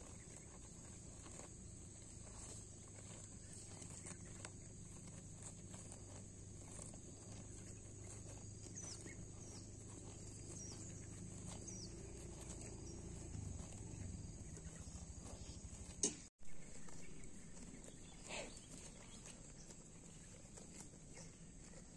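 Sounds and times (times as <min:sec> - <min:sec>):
cattle tearing and crunching grass: 0:00.0 - 0:21.9
low hum: 0:00.5 - 0:16.0.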